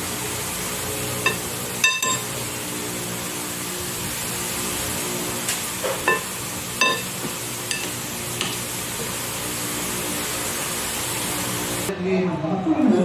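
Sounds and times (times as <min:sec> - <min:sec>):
knife clinking on glass bowl: 0:01.3 - 0:02.2, 0:06.8 - 0:07.1.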